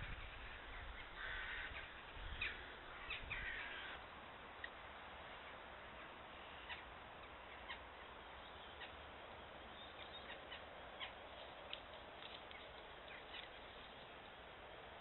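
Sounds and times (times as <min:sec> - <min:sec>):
jackdaw calls: 0:00.0 - 0:04.0, 0:05.3 - 0:09.1
microphone hiss: 0:00.0 - 0:15.0.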